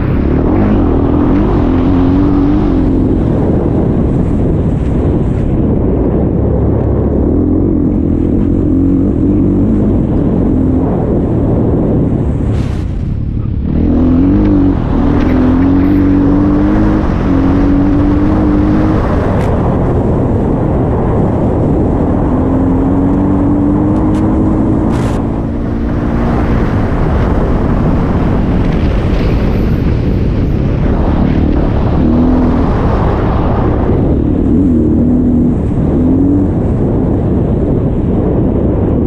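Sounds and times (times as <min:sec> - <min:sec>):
wind rush on microphone: 0:00.0 - 0:39.0
dirt bike engine revving: 0:13.5 - 0:19.5.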